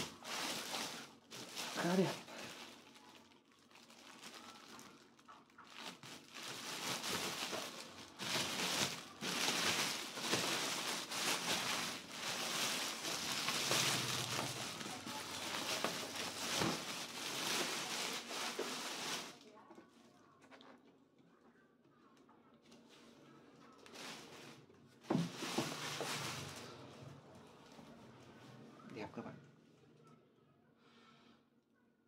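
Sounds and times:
plastic bag rustling: 0.0 - 19.5, 23.8 - 27.1.

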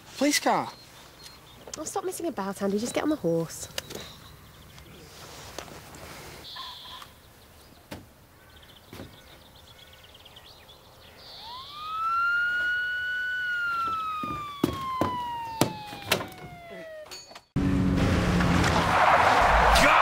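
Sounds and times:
police siren wailing: 11.3 - 17.2
sharp knocks: 13.8 - 17.2.

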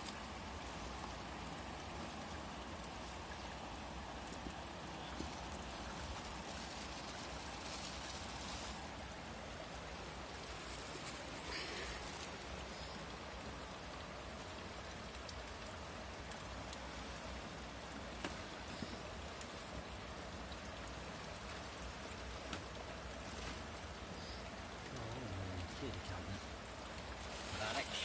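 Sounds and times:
river water running over rocks: 0.0 - 28.0
plastic sheeting rustling: 4.8 - 12.9, 27.0 - 28.0.

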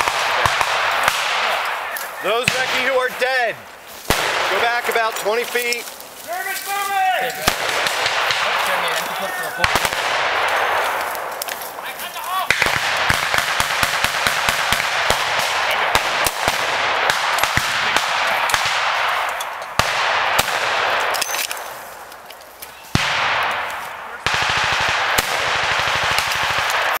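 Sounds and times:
single gunshots: 0.0 - 3.4, 4.0 - 5.1, 7.4 - 11.3, 12.5 - 21.6, 22.9 - 27.0.

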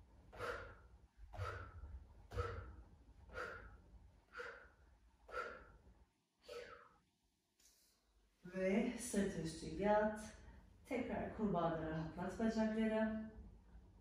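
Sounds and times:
woman breathing out sharply: 0.3 - 5.8.

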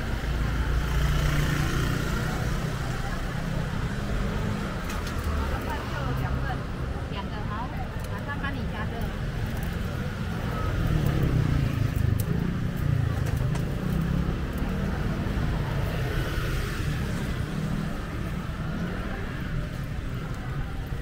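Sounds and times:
road traffic rumble: 0.0 - 21.0
people talking: 1.2 - 11.6.

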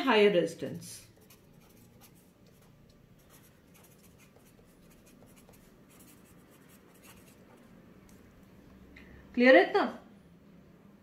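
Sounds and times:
pen scratching on paper: 1.1 - 7.7.

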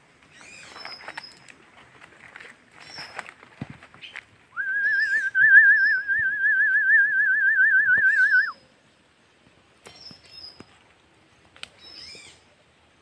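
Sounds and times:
loud warbling whistle: 4.6 - 8.6.

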